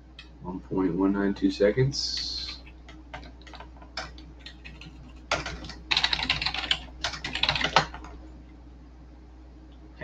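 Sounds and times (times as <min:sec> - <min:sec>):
typing on computer keyboard: 0:02.3 - 0:08.1.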